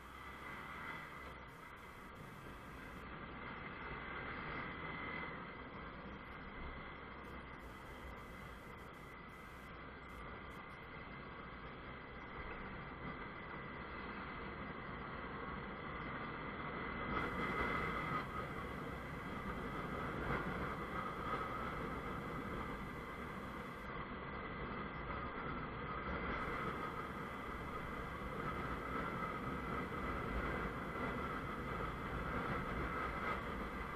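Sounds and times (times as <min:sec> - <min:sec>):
wind and road noise: 0:00.0 - 0:33.9.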